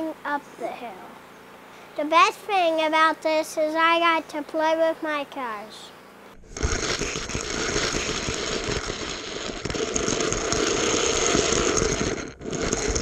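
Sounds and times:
toy car rattling on plastic track: 6.6 - 13.0.

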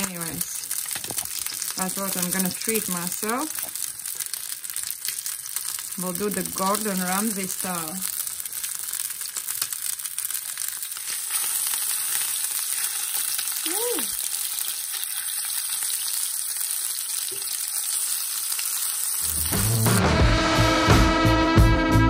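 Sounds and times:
fish sizzling in oil: 0.0 - 20.0
music with a beat: 19.4 - 22.0.

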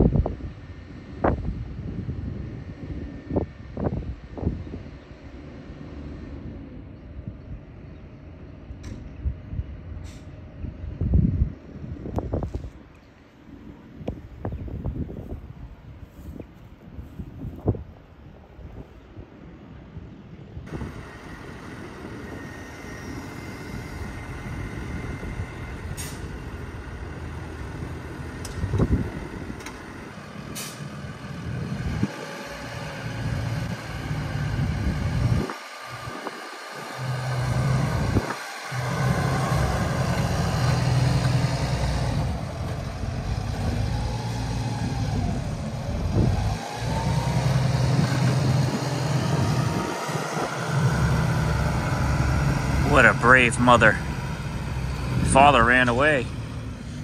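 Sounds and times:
tractor engine running: 20.7 - 57.0.

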